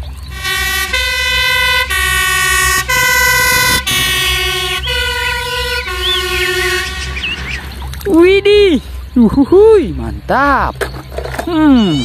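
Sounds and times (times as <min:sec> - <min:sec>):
fire engine two-tone siren: 0:00.3 - 0:08.2.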